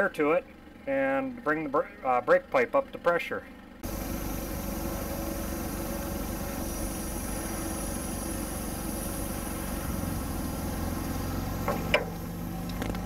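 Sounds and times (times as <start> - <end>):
air compressor running: 3.8 - 13.0.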